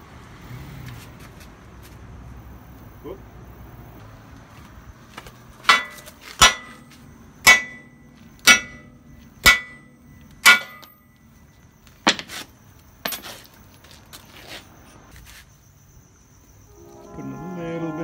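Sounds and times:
hammer striking metal: 0:05.7 - 0:11.0.

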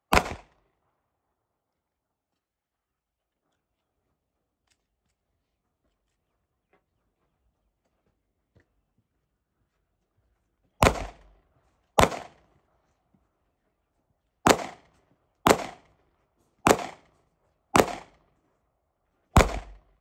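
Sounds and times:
pistol shots with echo: 0:00.1 - 0:00.6, 0:10.8 - 0:11.4, 0:12.0 - 0:12.5, 0:14.4 - 0:15.9, 0:16.6 - 0:17.1, 0:17.7 - 0:18.2, 0:19.4 - 0:19.9.

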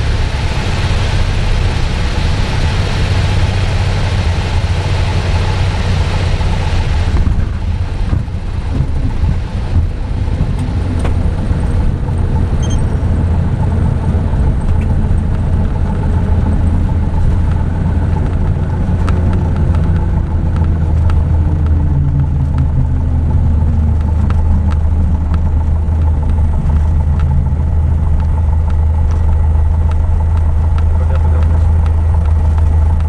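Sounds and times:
propeller aircraft engine drone: 0:00.0 - 0:33.0
light ticks: 0:17.2 - 0:33.0.

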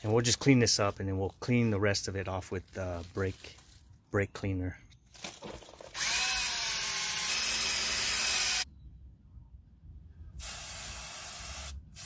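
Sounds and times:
aerosol spray hissing: 0:10.4 - 0:12.0.

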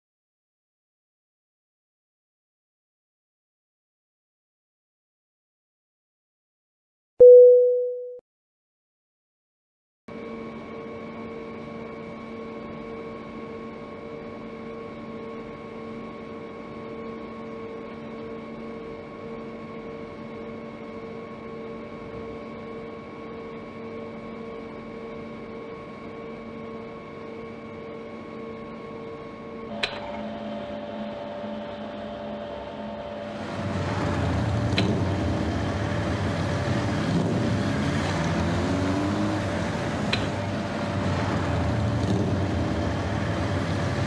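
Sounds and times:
electronic hum of fixed tones: 0:07.2 - 0:08.2.

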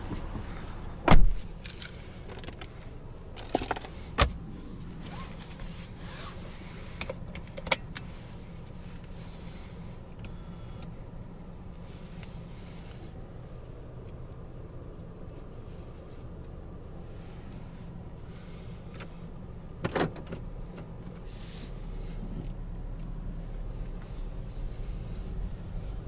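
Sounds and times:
car door shutting: 0:00.0 - 0:01.7, 0:19.8 - 0:20.9
low steady hum: 0:00.0 - 0:26.0.

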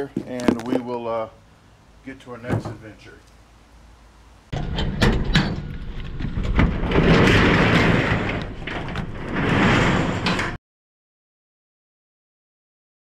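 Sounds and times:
metal roll-up door rattling: 0:04.5 - 0:10.6.

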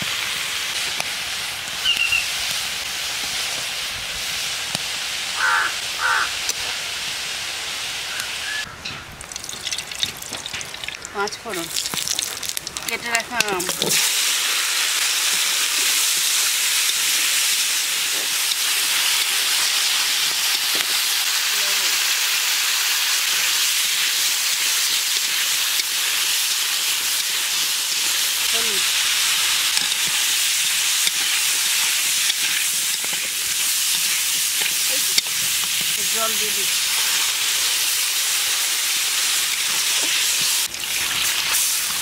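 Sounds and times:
mango frying in hot oil: 0:00.0 - 0:42.0.

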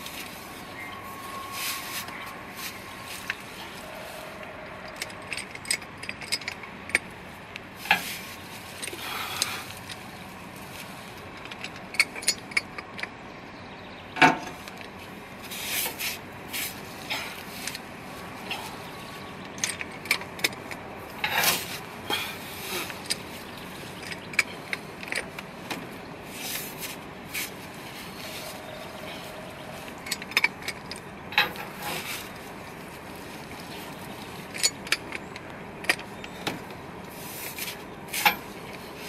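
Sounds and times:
metal clanks: 0:03.2 - 0:07.1, 0:19.5 - 0:27.0, 0:28.0 - 0:32.4.

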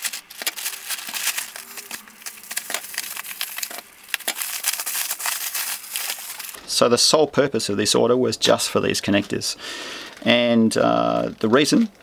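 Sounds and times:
plastic packaging crinkling: 0:00.0 - 0:06.6.

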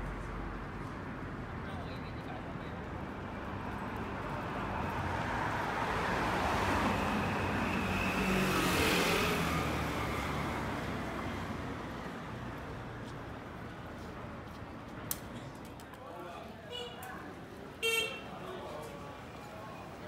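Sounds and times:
street traffic: 0:00.0 - 0:20.0
vehicle passing close by: 0:04.2 - 0:12.2.

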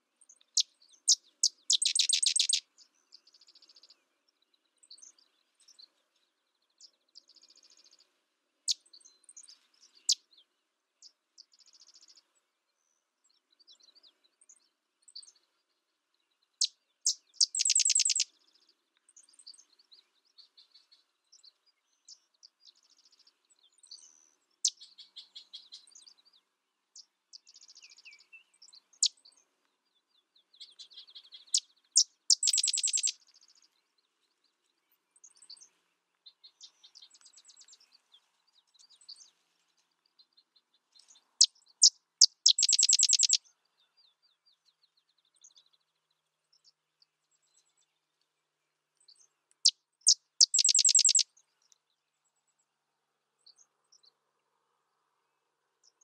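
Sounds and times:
faint bird chips and chatters: 0:00.3 - 0:04.0, 0:16.6 - 0:26.3, 0:30.5 - 0:33.7, 0:40.9 - 0:43.6, 0:49.0 - 0:51.8
wren song with chips and trill: 0:01.4 - 0:02.6, 0:17.4 - 0:18.2, 0:32.3 - 0:33.1, 0:42.2 - 0:43.4, 0:50.4 - 0:51.2.

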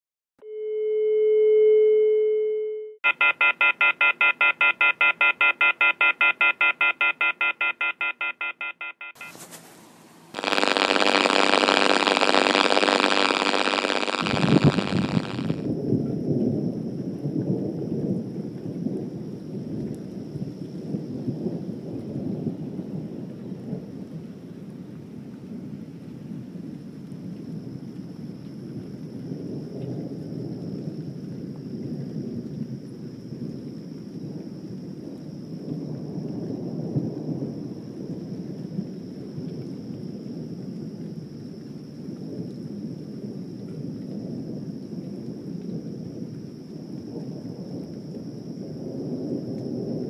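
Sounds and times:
ringing tone: 0:00.4 - 0:09.4
telephone bell ringing: 0:01.8 - 0:09.4
loud hiss with high tones: 0:09.2 - 0:15.7
heavy rain: 0:09.2 - 0:50.0
thunder rumbling: 0:10.4 - 0:24.4, 0:27.4 - 0:50.0.

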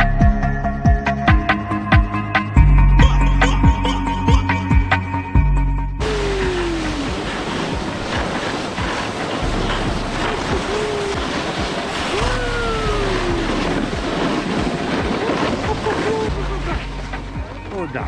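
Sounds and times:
background music: 0:00.0 - 0:07.2, 0:16.0 - 0:18.0
falling voice-like calls: 0:06.0 - 0:07.4, 0:10.5 - 0:13.8
wind on microphone: 0:06.0 - 0:17.7.

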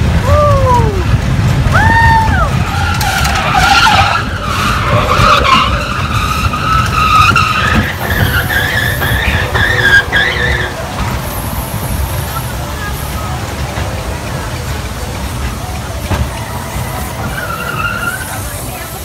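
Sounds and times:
roller coaster rumbling on track: 0:00.0 - 0:19.0
wheel squeal: 0:02.0 - 0:12.6, 0:15.4 - 0:19.0.

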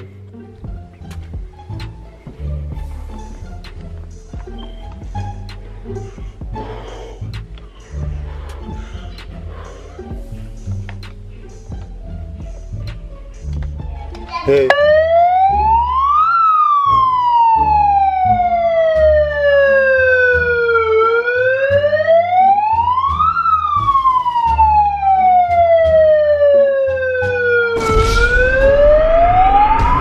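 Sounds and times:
electronic wail siren: 0:14.7 - 0:30.0.

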